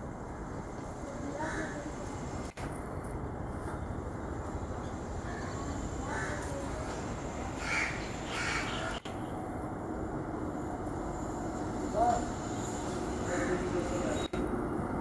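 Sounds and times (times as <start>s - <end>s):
train rumbling: 0.0s - 15.0s
crow cawing: 1.4s - 1.8s, 6.0s - 6.6s, 7.6s - 9.0s, 13.3s - 13.8s.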